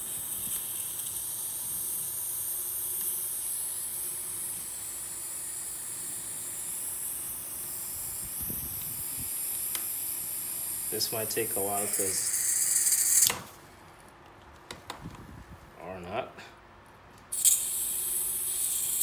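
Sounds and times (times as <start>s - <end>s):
butane gas hissing: 0.0s - 13.5s, 17.3s - 19.0s.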